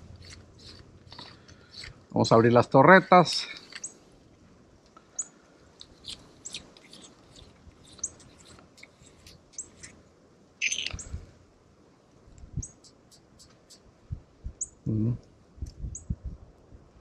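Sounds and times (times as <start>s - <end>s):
small birds chirping: 0.1s - 2.0s, 3.1s - 4.1s, 5.1s - 10.0s, 10.6s - 11.2s, 12.5s - 13.9s, 14.5s - 16.2s.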